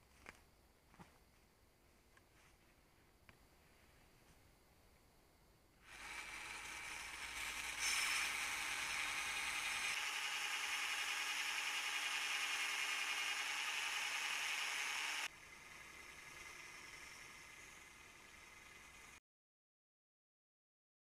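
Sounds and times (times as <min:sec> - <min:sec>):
drill sanding disc grinding metal: 0:05.8 - 0:19.2.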